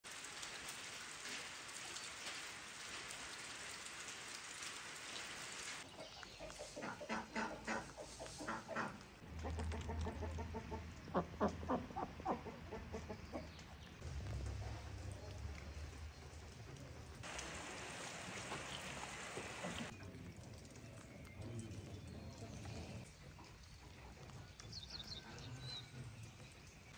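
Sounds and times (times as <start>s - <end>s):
rain hissing: 0.0s - 5.8s, 14.0s - 20.0s
chickens calling: 5.8s - 13.8s, 17.6s - 19.9s.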